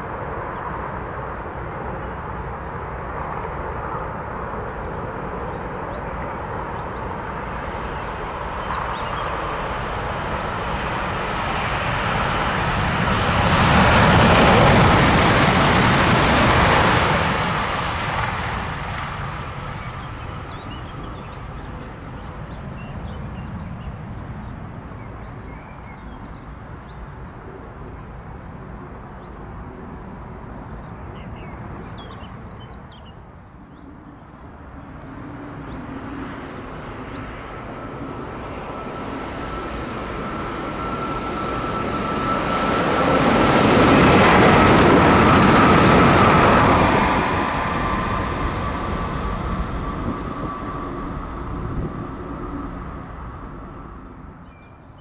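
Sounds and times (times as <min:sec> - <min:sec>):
high-speed train passing: 0:00.0 - 0:55.0
steady high whine: 0:33.8 - 0:54.4.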